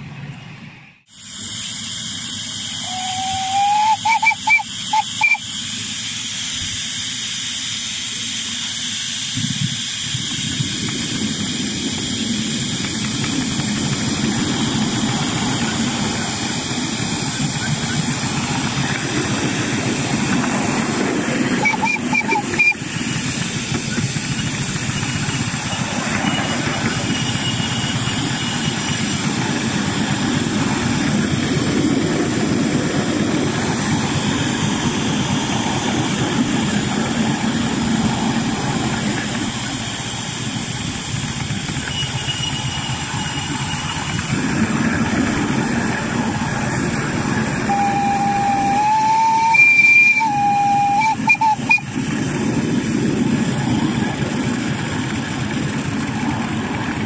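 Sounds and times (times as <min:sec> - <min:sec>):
miniature steam locomotive running: 0:01.0 - 0:57.0
steam whistle: 0:02.6 - 0:05.7, 0:21.4 - 0:23.2, 0:47.6 - 0:52.1.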